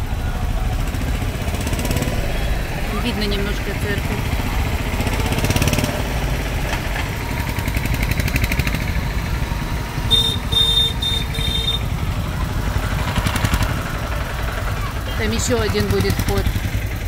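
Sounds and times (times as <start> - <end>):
bus engine: 0.0 - 17.0
motorcycle engines: 0.0 - 17.0
high electronic beeps: 10.0 - 11.8.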